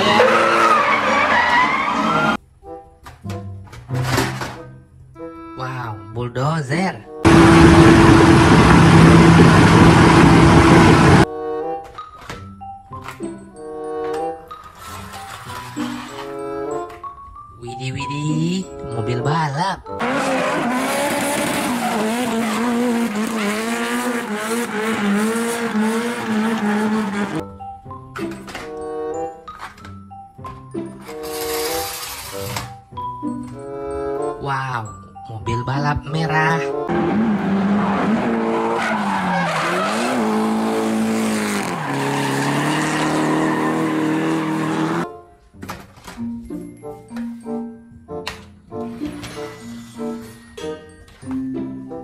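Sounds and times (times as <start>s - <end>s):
tyres screeching: 0.0s - 2.4s, 20.0s - 27.4s, 36.9s - 45.0s
car engine at high revs: 7.2s - 11.3s, 20.0s - 27.4s, 36.9s - 45.0s.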